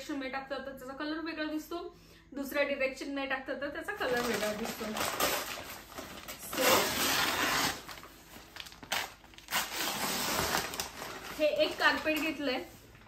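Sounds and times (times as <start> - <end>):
carpet rustling and crinkling: 4.0 - 13.0.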